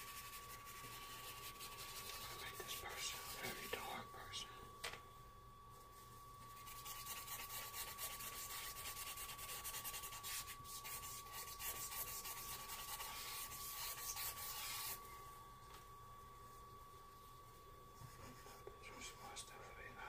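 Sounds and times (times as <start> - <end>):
charcoal rubbing on paper: 0.0 - 3.6, 6.5 - 15.0.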